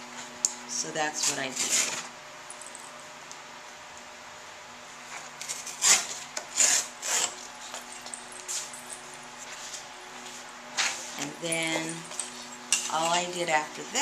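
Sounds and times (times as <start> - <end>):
thick paper tearing: 5.5 - 7.4.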